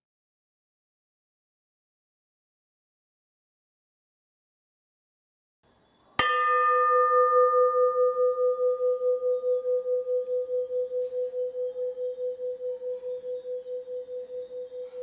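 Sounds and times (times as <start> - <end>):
bronze bell ringing: 6.2 - 15.0.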